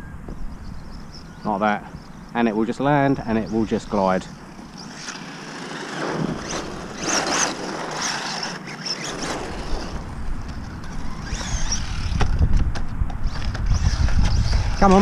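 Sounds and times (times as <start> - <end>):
tyres running over concrete: 2.7 - 15.0
electric motor whining: 3.0 - 15.0.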